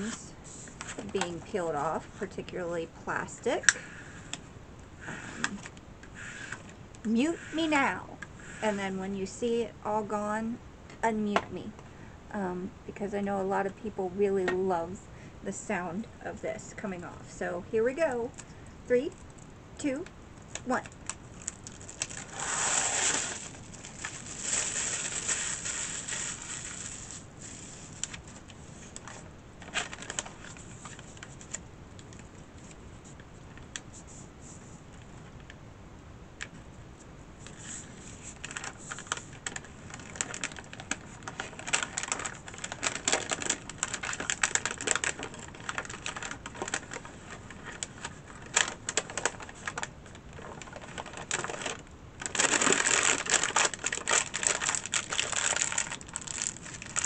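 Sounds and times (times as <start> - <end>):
plastic film peeling crackle: 20.8 - 32.8, 37.4 - 57.0.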